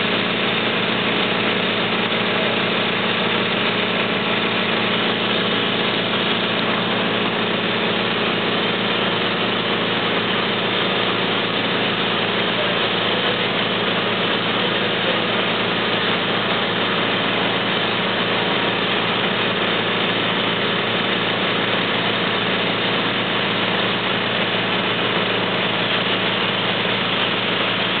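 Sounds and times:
fire engine running: 0.0 - 28.0.

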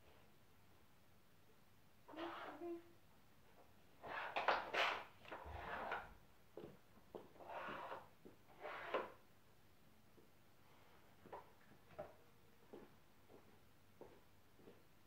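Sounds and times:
wood scraping on wood: 4.0 - 6.1, 7.4 - 9.2.

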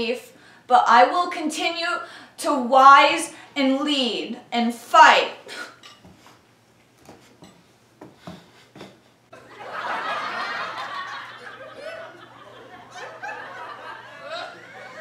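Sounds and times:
crowd laughing: 9.4 - 15.0.

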